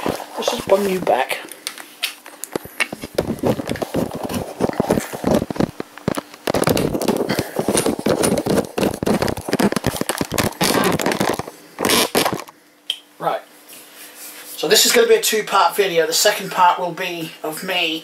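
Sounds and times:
camera handling knocks and rubbing: 2.5s - 12.5s.

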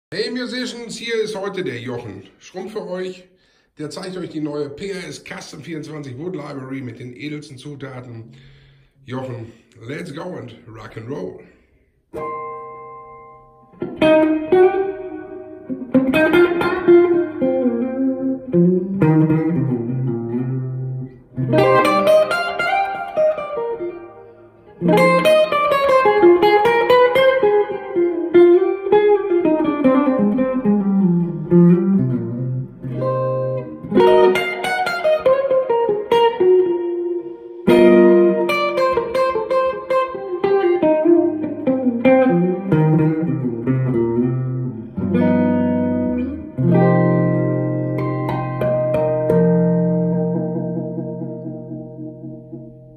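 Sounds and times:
electric guitar through amplifier: 12.1s - 52.9s.

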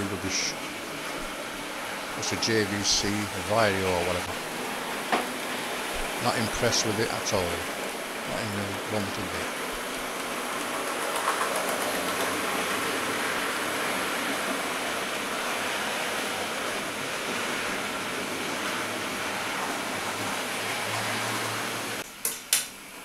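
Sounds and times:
model trains running on rails: 0.0s - 22.0s.

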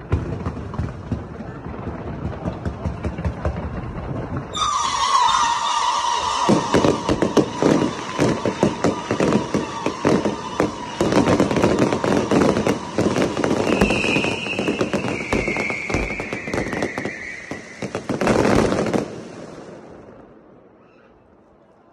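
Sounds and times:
fireworks crackling: 0.0s - 20.5s
descending whistling tone: 4.5s - 18.2s.

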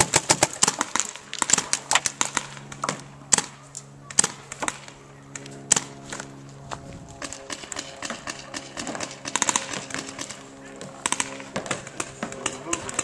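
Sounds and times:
paintball markers firing: 0.0s - 3.5s, 4.1s - 6.3s, 7.2s - 13.0s.

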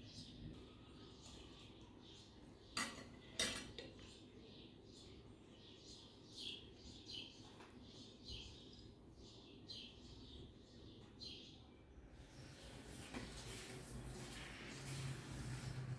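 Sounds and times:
faint bird chirping: 0.0s - 13.6s.

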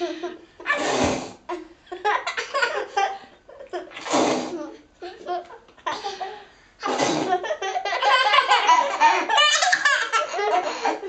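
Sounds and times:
small children laughing: 7.1s - 11.0s.

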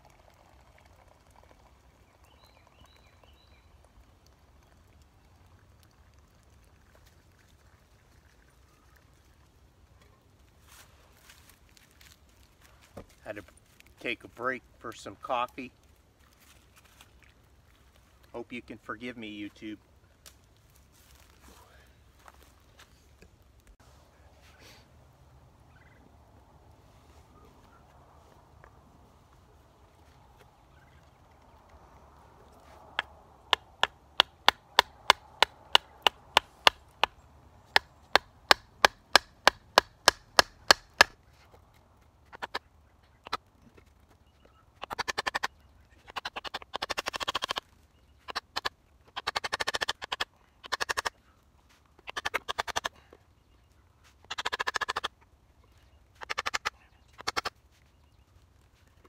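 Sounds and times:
wood splitting: 37.7s - 41.2s.

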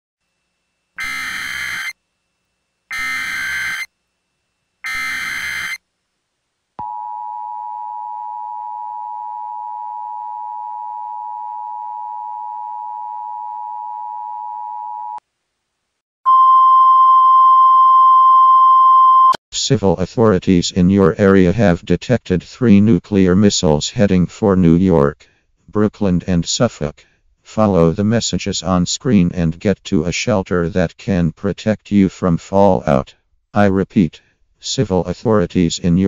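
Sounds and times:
buzzy data bursts: 1.0s - 1.9s, 2.9s - 3.9s, 4.8s - 5.8s
two-tone attention signal: 1.0s - 2.0s, 2.9s - 3.9s, 4.8s - 5.8s
single steady tone: 6.8s - 15.2s, 16.3s - 19.4s.

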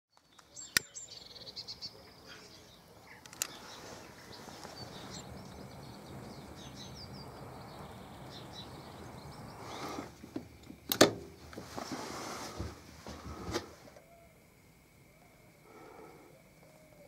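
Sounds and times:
small birds chirping: 0.1s - 11.6s.

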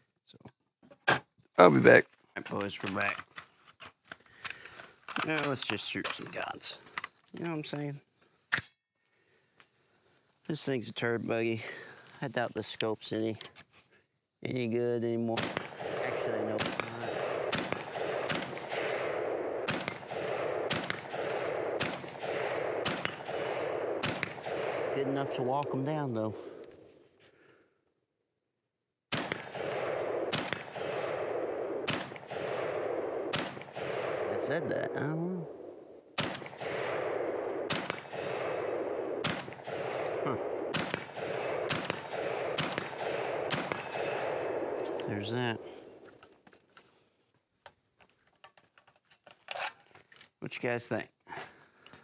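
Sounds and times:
rifle shots: 15.3s - 26.8s, 29.1s - 46.0s.

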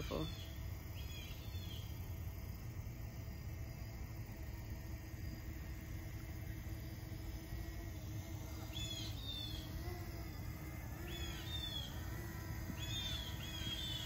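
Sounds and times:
songbird chirping: 0.0s - 2.1s, 7.7s - 14.0s
faint steady hum: 0.0s - 14.0s.

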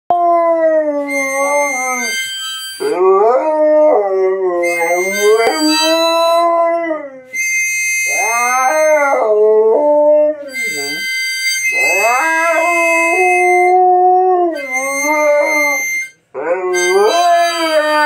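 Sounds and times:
husky howling: 2.8s - 7.5s, 8.1s - 11.0s, 11.7s - 18.0s
faint steady high tone: 4.7s - 6.7s, 14.5s - 16.2s.

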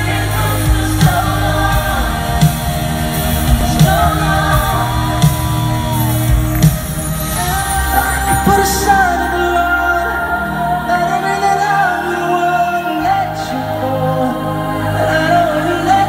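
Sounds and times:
bass and keys: 0.0s - 16.0s
man singing: 0.0s - 16.0s
heavy drum hits: 0.7s - 8.6s.

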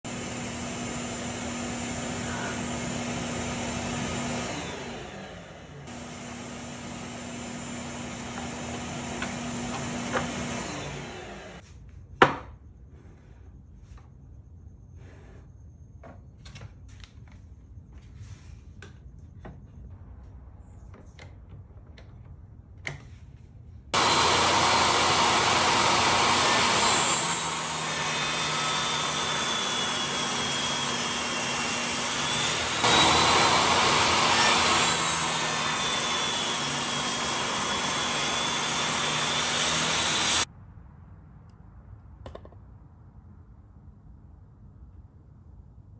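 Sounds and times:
table saw cutting wood: 0.0s - 11.6s, 24.0s - 40.5s.

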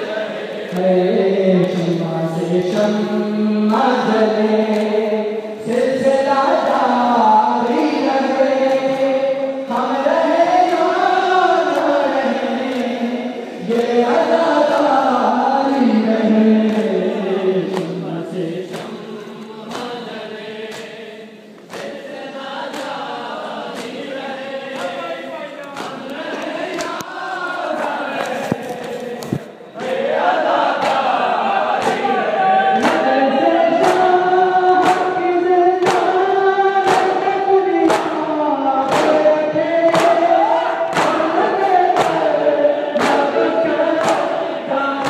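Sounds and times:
men chanting in chorus: 0.0s - 45.0s
hand slaps on bare chests: 4.7s - 5.0s, 8.6s - 9.0s, 12.7s - 13.0s, 17.7s - 18.0s, 18.7s - 19.1s, 19.7s - 20.0s, 20.7s - 21.0s, 21.6s - 22.0s, 23.7s - 24.1s, 24.8s - 25.0s, 25.6s - 27.1s, 30.7s - 31.2s, 31.8s - 32.1s, 32.8s - 33.2s, 33.8s - 34.2s, 34.8s - 35.2s, 35.8s - 37.3s, 37.9s - 38.2s, 38.8s - 39.3s, 39.9s - 42.3s, 43.0s - 43.4s, 44.0s - 44.4s.

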